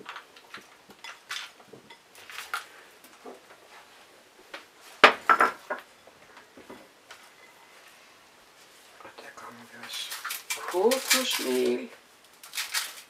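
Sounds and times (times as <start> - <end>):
bowl and utensils clattering: 0.0 - 2.7.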